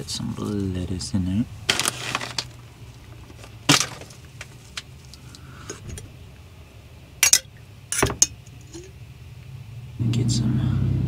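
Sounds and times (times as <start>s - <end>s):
low steady hum: 0.0s - 11.0s
food containers and utensils clinking: 1.7s - 4.9s, 7.2s - 9.0s.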